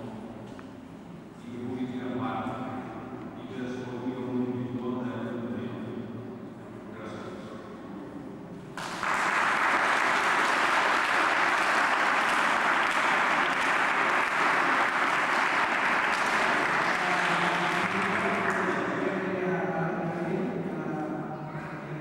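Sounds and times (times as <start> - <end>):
audience applauding: 8.8 - 19.0.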